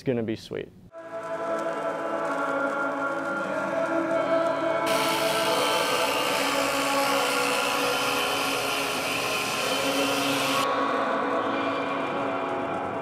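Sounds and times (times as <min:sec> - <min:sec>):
background music: 0:00.9 - 0:13.0
orbital polisher whirring: 0:04.8 - 0:10.7.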